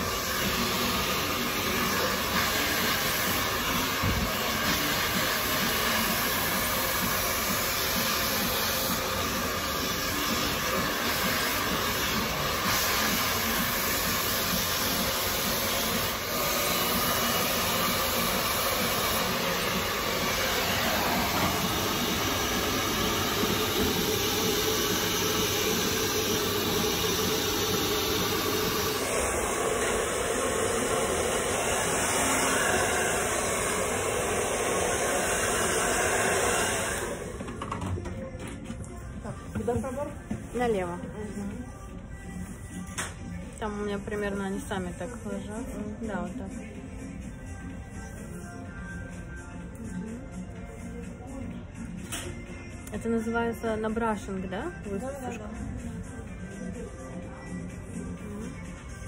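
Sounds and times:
hair dryer blowing: 0:00.0 - 0:37.9.

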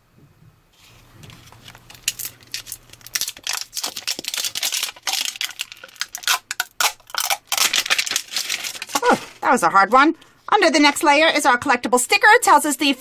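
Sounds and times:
plastic wrapping crackling: 0:01.1 - 0:09.5.

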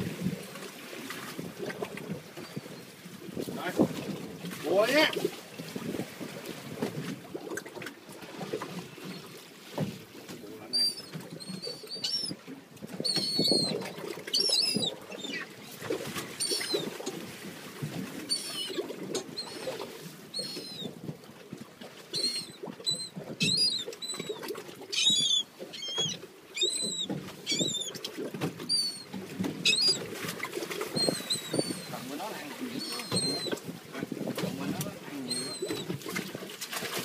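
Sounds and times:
waves: 0:00.0 - 0:37.0
wind: 0:00.0 - 0:37.0
seabirds calling: 0:02.4 - 0:02.9, 0:10.4 - 0:17.2, 0:18.2 - 0:21.1, 0:22.0 - 0:36.1.

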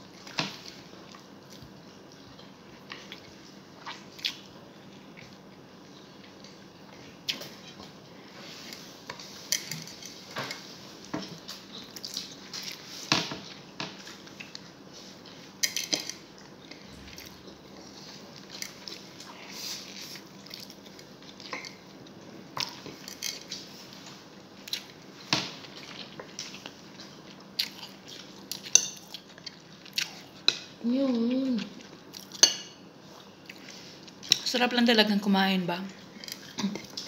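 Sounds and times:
chewing and mouth smacking: 0:25.7 - 0:30.4.

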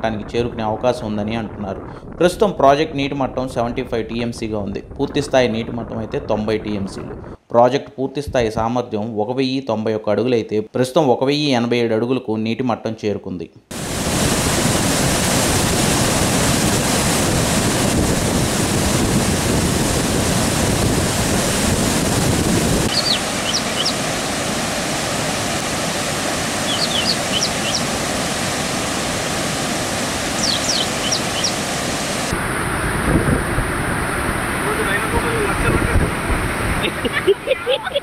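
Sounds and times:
water roaring through spillway: 0:13.7 - 0:38.0.

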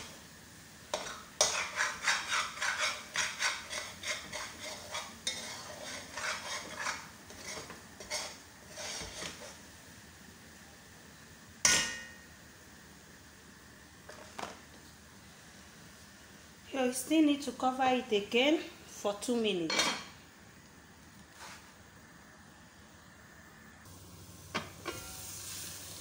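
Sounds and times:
spoon stirring in metal pot: 0:00.9 - 0:09.6.

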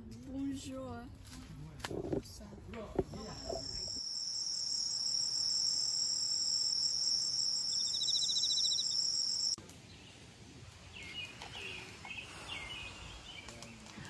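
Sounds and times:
insects droning: 0:03.0 - 0:09.6
insect rapid trill: 0:03.2 - 0:09.6.

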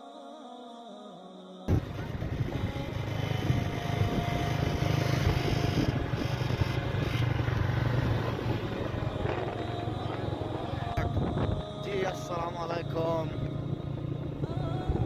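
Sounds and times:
motorcycle engine running: 0:01.7 - 0:15.0
wind rushing over microphone: 0:01.7 - 0:15.0.

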